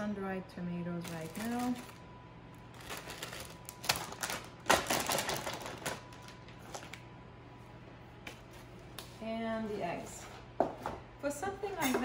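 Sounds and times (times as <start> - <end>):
plastic bags rustling and crinkling: 1.0 - 2.0, 2.6 - 7.0
sharp plastic crackles: 2.6 - 7.0.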